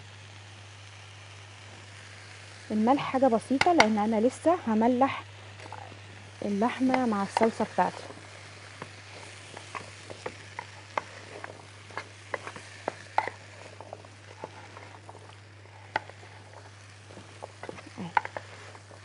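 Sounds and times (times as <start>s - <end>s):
steady low hum: 0.0s - 19.0s
spoon scraping baking tray: 8.8s - 19.0s.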